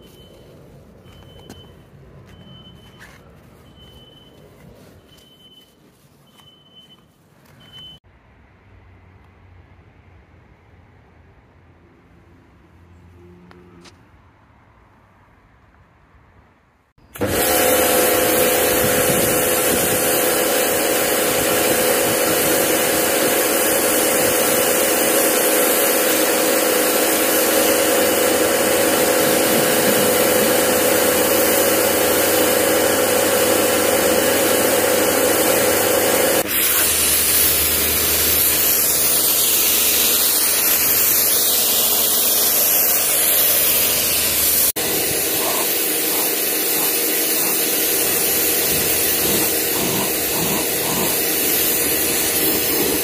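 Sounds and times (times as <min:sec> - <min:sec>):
pressure washer motor humming: 0:17.1 - 0:53.0
water jet spraying hiss: 0:18.0 - 0:32.4, 0:36.4 - 0:53.0.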